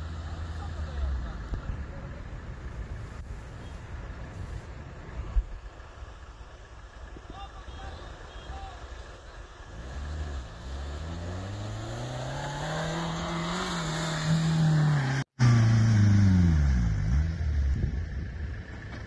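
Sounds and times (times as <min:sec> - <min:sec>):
suv engine revving hard: 0:09.7 - 0:17.3.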